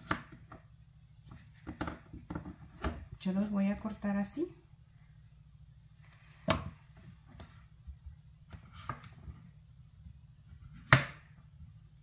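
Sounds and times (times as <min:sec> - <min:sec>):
knife cutting on plastic board: 0:00.0 - 0:03.0, 0:08.5 - 0:09.4, 0:10.5 - 0:11.4.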